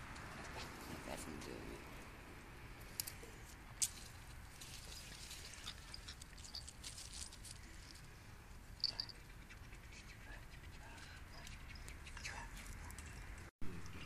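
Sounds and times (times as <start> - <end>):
puppy paws pattering on paving: 9.1 - 13.5.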